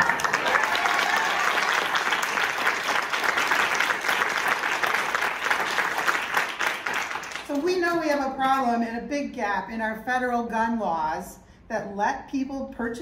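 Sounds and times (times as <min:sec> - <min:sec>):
crowd applauding: 0:00.0 - 0:07.6.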